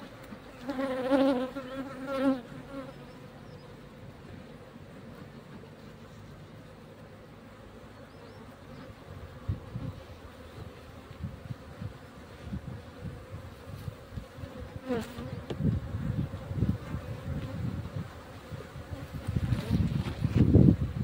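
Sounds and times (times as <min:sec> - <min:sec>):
bees buzzing: 0:00.0 - 0:21.0
bee flying past microphone: 0:08.3 - 0:21.0.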